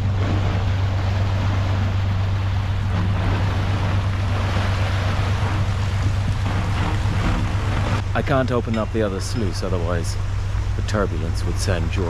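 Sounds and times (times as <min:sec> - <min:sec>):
constant low hum: 0:00.0 - 0:12.0
water rushing into lock: 0:00.0 - 0:12.0.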